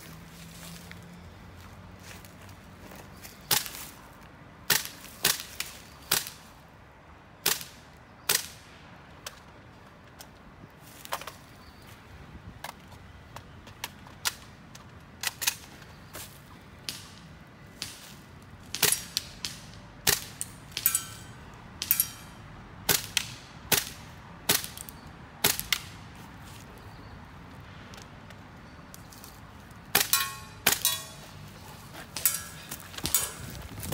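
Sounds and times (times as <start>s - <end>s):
metallic ring: 20.8s - 22.4s, 30.0s - 31.6s, 32.2s - 33.6s.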